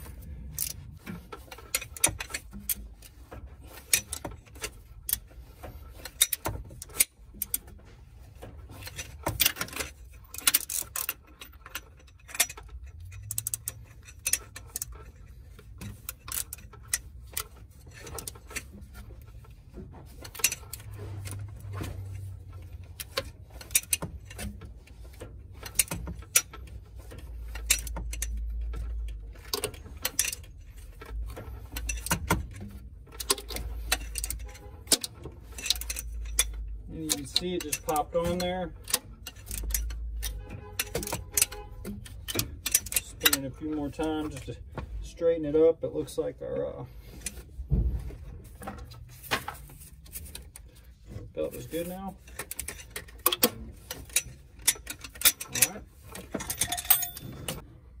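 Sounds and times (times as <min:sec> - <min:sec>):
ratchet wrench clicking: 0:08.8 - 0:18.7, 0:27.5 - 0:44.3.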